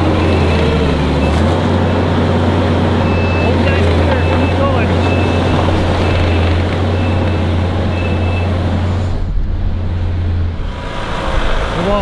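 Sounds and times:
diesel engine droning: 0:00.0 - 0:12.0
reversing alarm beeping: 0:00.1 - 0:02.1, 0:03.0 - 0:08.6.

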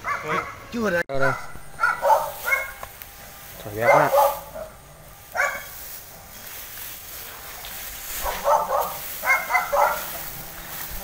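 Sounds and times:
dog barking: 0:00.0 - 0:00.6, 0:01.2 - 0:02.8, 0:03.8 - 0:05.8, 0:08.2 - 0:10.3.

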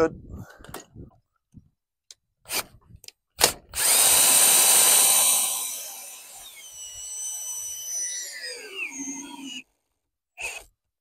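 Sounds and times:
cordless drill running: 0:03.7 - 0:09.6, 0:10.4 - 0:10.7.

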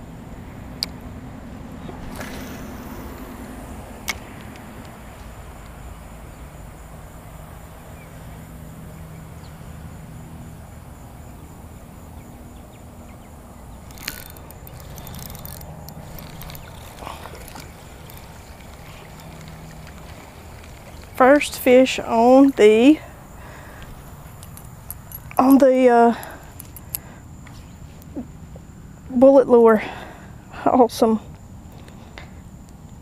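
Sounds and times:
steady low rumble: 0:00.0 - 0:29.2
sharp clicks: 0:13.8 - 0:21.4
spinning reel cranking: 0:13.8 - 0:22.4.

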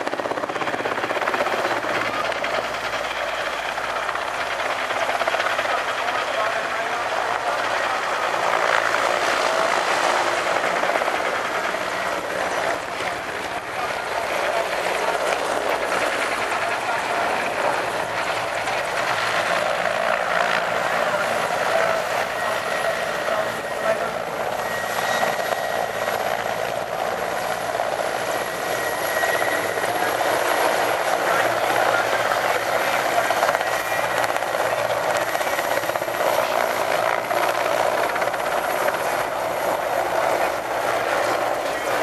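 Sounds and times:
helicopter engines and rotor: 0:00.0 - 0:42.0.

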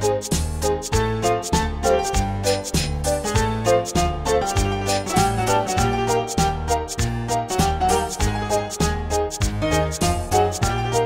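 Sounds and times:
bass line: 0:00.0 - 0:11.0
music with a steady beat: 0:00.0 - 0:11.0.

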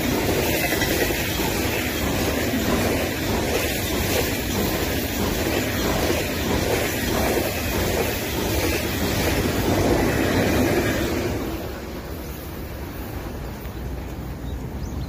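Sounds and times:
train cars rushing past: 0:00.0 - 0:14.8
train wheels rumbling on rails: 0:00.0 - 0:15.0.

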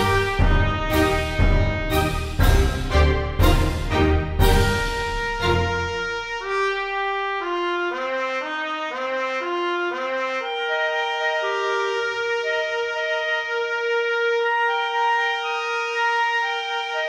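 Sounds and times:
brass-toned melody: 0:00.0 - 0:17.0.

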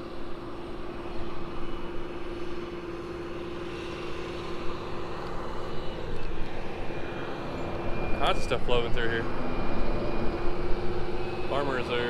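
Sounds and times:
tractor engine drone: 0:00.0 - 0:12.0.

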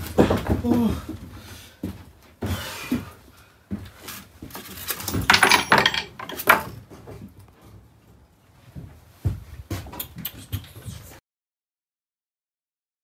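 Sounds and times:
objects knocking on wooden shelves: 0:00.0 - 0:01.0, 0:04.5 - 0:07.4
rattling clatter with metallic clinks: 0:04.9 - 0:06.7.

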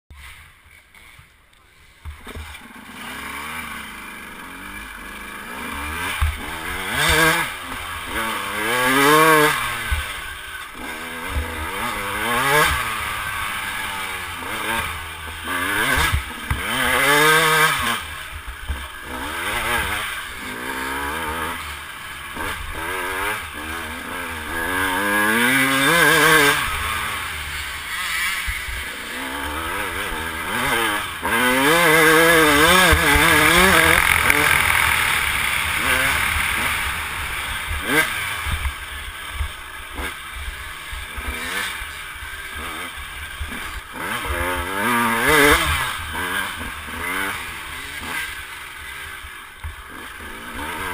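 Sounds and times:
dirt bike engine revving: 0:02.0 - 0:50.9
bike knocking and rattling: 0:06.0 - 0:09.2, 0:18.2 - 0:19.8, 0:30.5 - 0:41.6.

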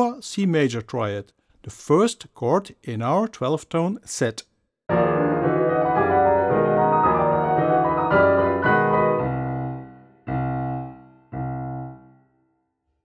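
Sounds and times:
piano playing: 0:04.9 - 0:12.5.

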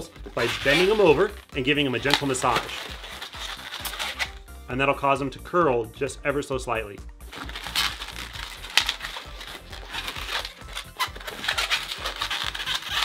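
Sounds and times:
balloons squeaking and rubbing: 0:00.0 - 0:04.5, 0:07.2 - 0:13.0.

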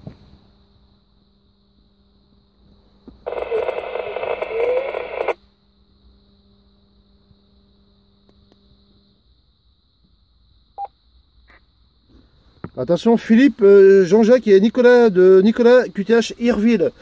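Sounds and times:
radio static burst: 0:03.2 - 0:05.4.

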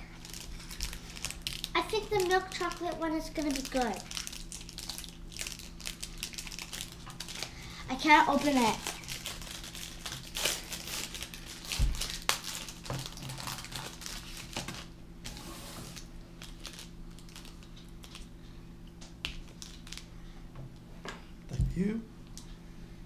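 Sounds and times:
wrapper crinkling: 0:00.0 - 0:18.3, 0:19.2 - 0:20.1.

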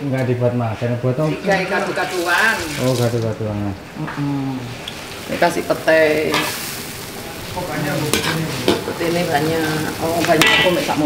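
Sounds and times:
food sizzling in sauce: 0:01.2 - 0:11.0
metal spatula scraping a wok: 0:09.8 - 0:11.0.

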